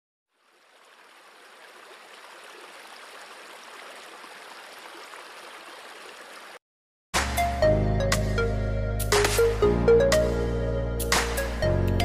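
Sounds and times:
running water rushing: 0.3 - 6.6.

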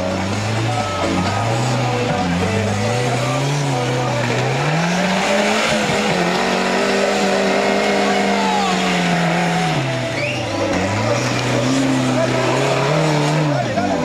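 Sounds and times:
engine revving hard: 0.0 - 14.0.

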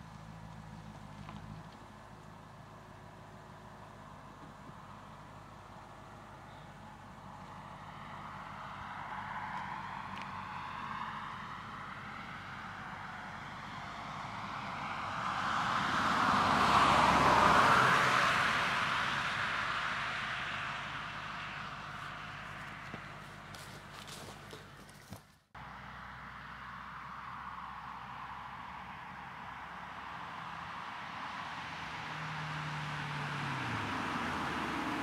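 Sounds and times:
car driving past: 6.9 - 24.6, 25.6 - 35.0
tyre noise: 21.9 - 25.5.

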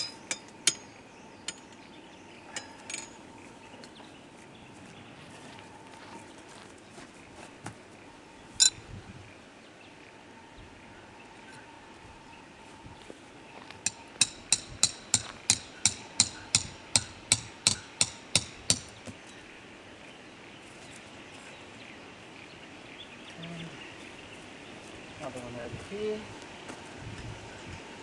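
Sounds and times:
tent peg being hammered: 13.9 - 19.1.

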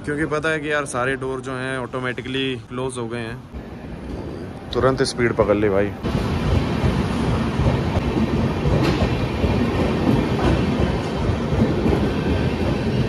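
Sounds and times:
train wheels rumbling on rails: 3.6 - 13.0.

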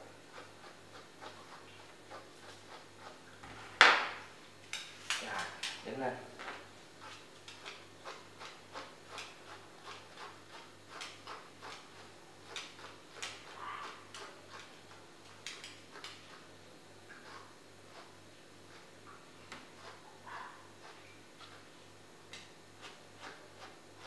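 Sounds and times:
brush scratching through dog coat: 0.2 - 3.2, 7.0 - 16.5, 17.1 - 21.8, 22.4 - 24.0.

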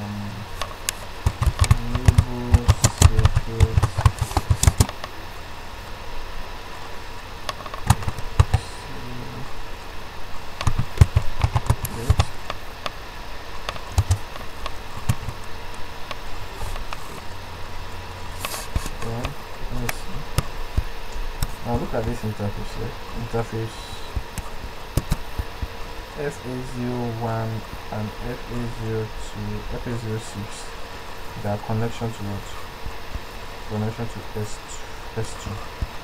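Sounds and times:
low steady hum: 0.0 - 36.0
computer keyboard typing: 1.2 - 5.0, 7.5 - 8.7, 10.6 - 12.4, 13.7 - 14.4, 15.0 - 15.4.

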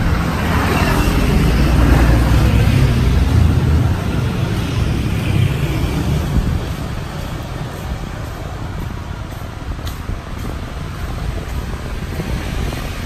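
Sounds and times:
low traffic rumble: 0.0 - 13.0
motor scooters passing: 0.0 - 13.0.

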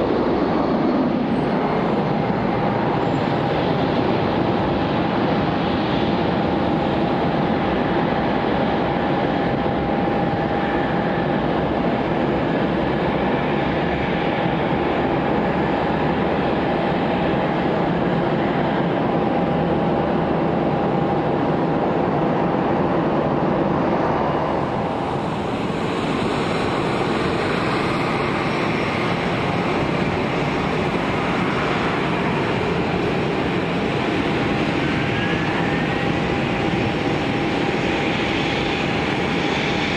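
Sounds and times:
jet engines idling: 0.0 - 39.9
jet engine spooling up: 18.2 - 39.9.

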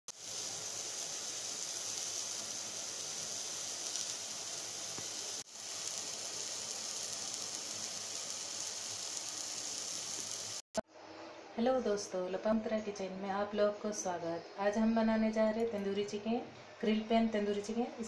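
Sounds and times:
high-pitched hiss: 0.1 - 10.6.

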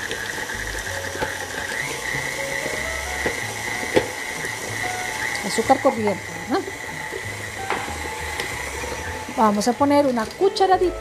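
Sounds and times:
stand mixer motor whine: 0.0 - 11.0.

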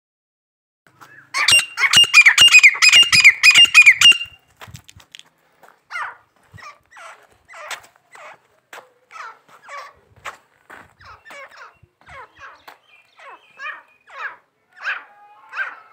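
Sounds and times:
bird harsh repeated calls: 1.0 - 4.4, 11.0 - 15.9.

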